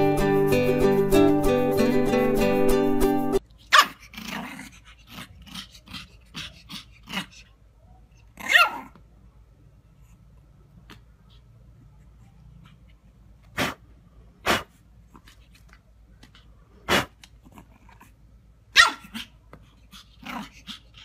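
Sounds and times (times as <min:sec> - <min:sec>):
puppy barking: 0:03.7 - 0:04.5, 0:08.4 - 0:09.0, 0:18.7 - 0:19.4.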